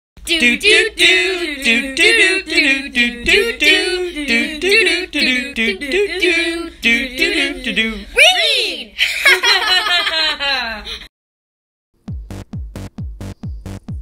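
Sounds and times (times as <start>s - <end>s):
person singing unaccompanied: 0.2s - 8.3s.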